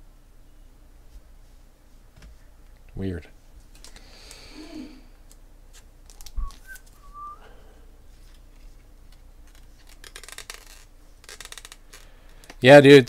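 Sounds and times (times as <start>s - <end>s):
faint clicks of card handling: 3.6s - 4.4s, 8.2s - 12.6s
whistle-like bending tone: 6.4s - 7.7s.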